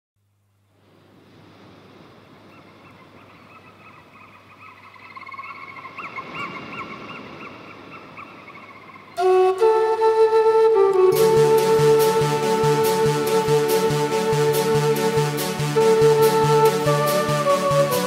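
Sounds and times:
high warbling animal calls: 3.4 - 9.2.

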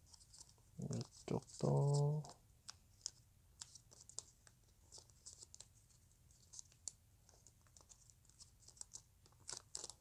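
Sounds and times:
paper being folded: 0.0 - 10.0.

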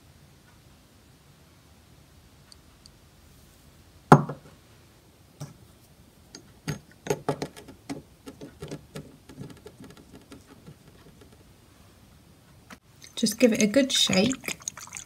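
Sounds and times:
glass bottle knocking on wood: 4.2 - 4.4, 6.7 - 11.4.

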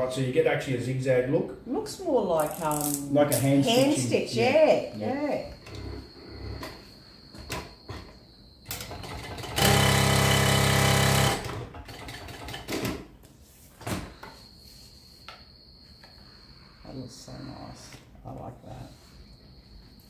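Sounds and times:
sewing machine stitching: 8.8 - 13.0.

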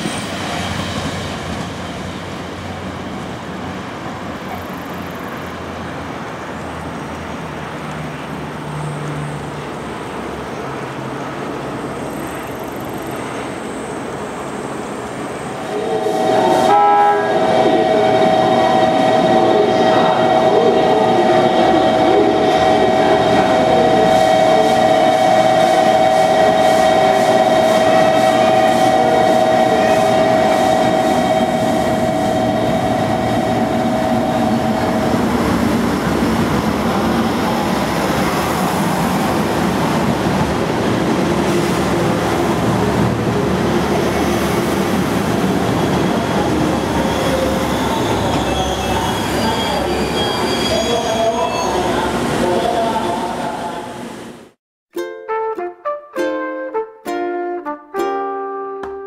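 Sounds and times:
diesel railcars rumbling: 0.0 - 54.5
rising run of notes: 15.7 - 37.2.

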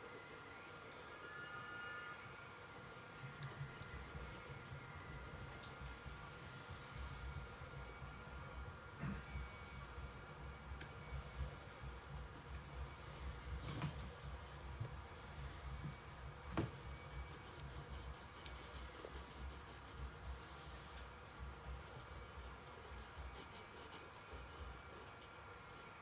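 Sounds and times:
pencil scratching on paper: 3.1 - 6.4, 10.0 - 13.6, 16.5 - 26.0.

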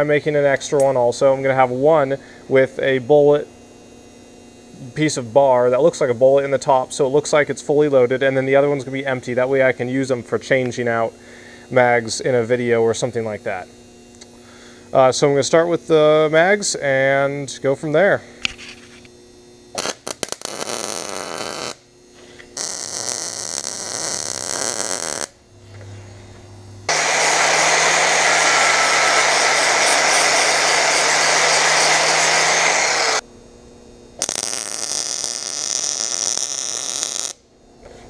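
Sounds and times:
welding hiss: 19.8 - 25.4, 26.9 - 33.2, 34.2 - 37.4.

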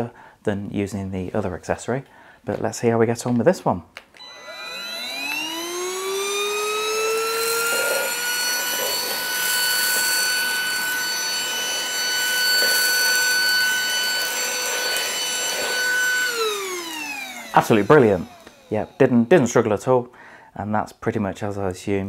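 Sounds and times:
rice rattling up vacuum: 4.2 - 19.3
handheld vacuum whining: 4.2 - 19.7.

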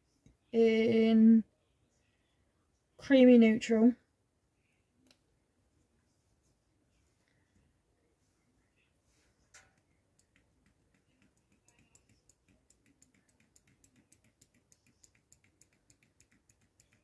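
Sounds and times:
faint clicking and tapping: 9.2 - 17.0.

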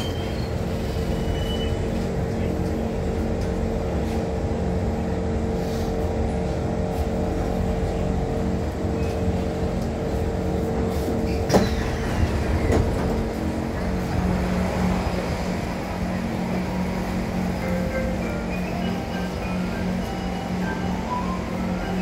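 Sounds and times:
train interior hum with tone: 0.0 - 22.0
train doors opening clunk: 11.2 - 14.2.

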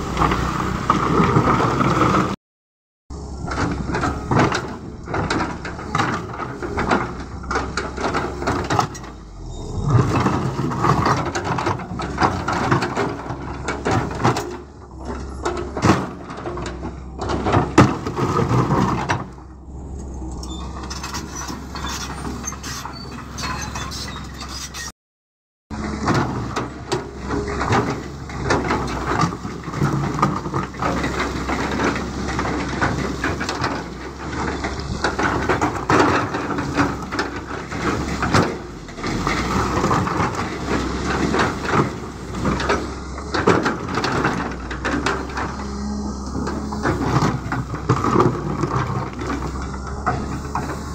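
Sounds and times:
excavator diesel engine running: 0.0 - 2.4, 3.1 - 24.9, 25.7 - 50.9
rocks knocking and clattering: 10.0 - 19.4, 25.9 - 50.9
bucket scraping through stone: 20.4 - 24.9.

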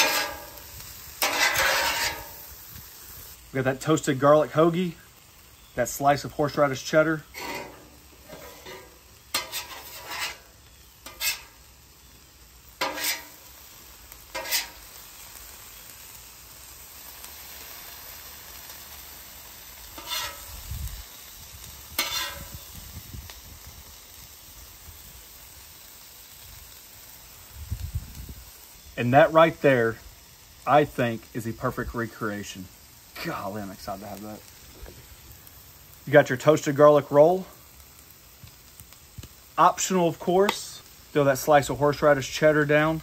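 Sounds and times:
metal spatulas scraping on steel: 0.0 - 0.6, 1.2 - 2.4, 7.2 - 11.6, 12.8 - 13.4, 14.3 - 14.8, 20.0 - 20.5, 22.0 - 22.5
faint sizzle of food cooking: 0.0 - 43.0.

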